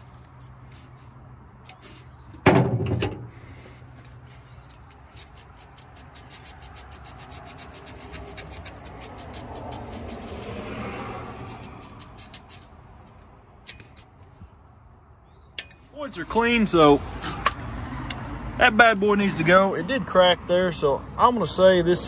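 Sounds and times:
sandpaper rasping: 4.7 - 12.7.

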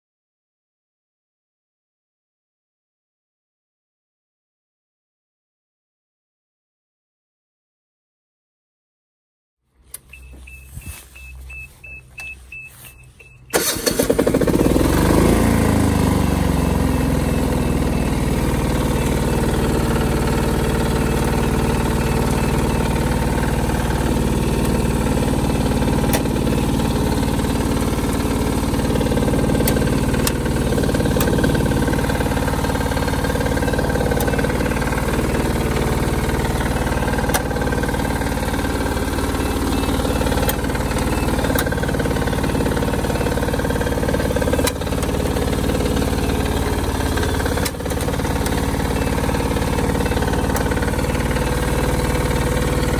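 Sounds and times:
baler engine starting and running: 9.7 - 52.9
light engine ticks: 21.1 - 32.9, 33.8 - 38.2, 40.1 - 52.9.

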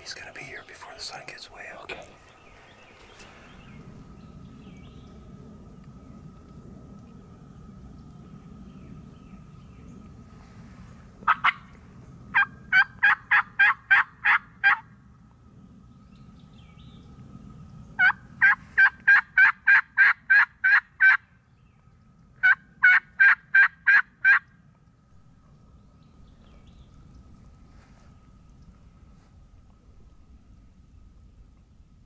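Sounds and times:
turkey call yelps: 11.3 - 11.6, 12.3 - 14.8, 18.0 - 21.2, 22.4 - 24.4.

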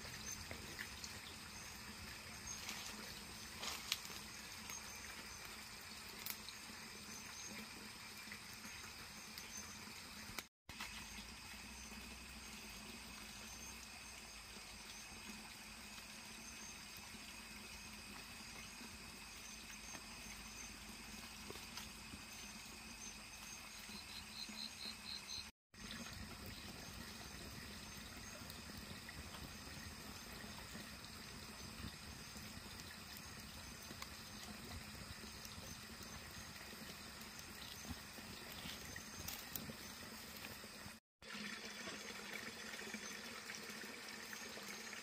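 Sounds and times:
campfire crackling and hissing: 0.0 - 41.0.

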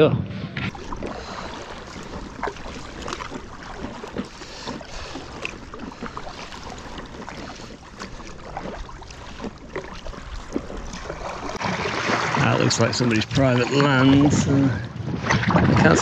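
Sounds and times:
wind: 0.0 - 16.0
paddle splashing water: 0.6 - 16.0
water wash: 0.7 - 16.0.

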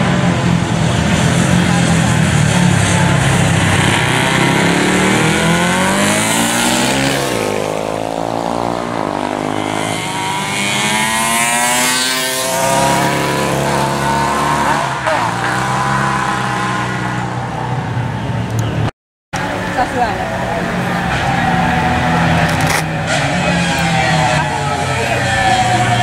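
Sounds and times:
motorcycles revving past: 0.0 - 17.7.

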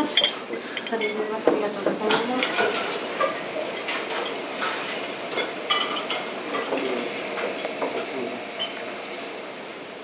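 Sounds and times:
forks clinking on plates: 0.0 - 1.2, 2.1 - 8.8.

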